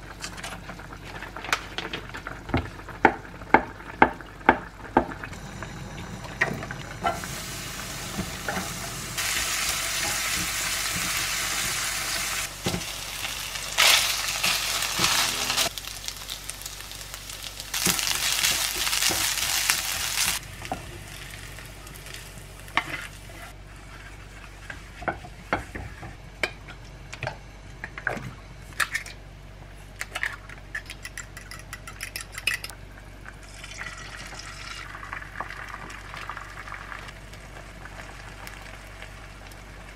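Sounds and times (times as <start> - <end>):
onion and ham sizzling in a pan: 2.4 - 26.1, 33.4 - 39.9.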